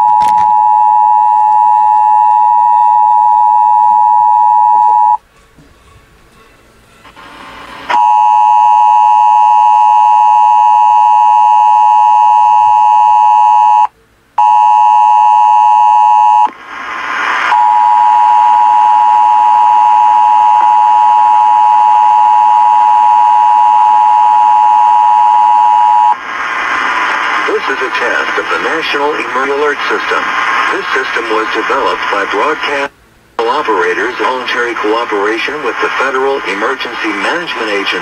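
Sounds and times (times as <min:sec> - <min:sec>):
two-tone emergency alert signal: 0:00.0 - 0:05.2.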